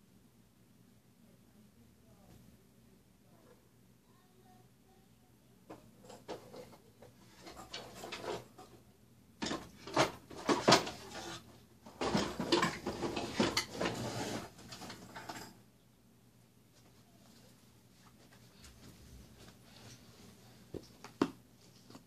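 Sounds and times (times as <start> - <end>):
objects rummaged through: 9.4 - 15.5.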